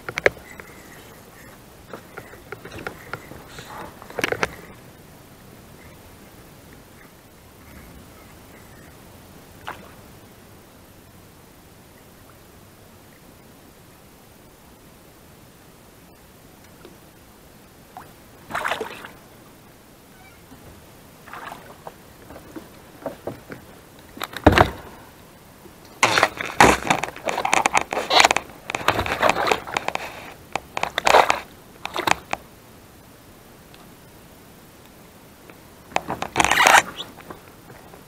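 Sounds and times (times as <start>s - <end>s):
fish splashing in water: 21.2s - 22.0s
fish thudding onto kayak: 26.0s - 29.8s
fish flopping against plastic: 26.0s - 32.4s.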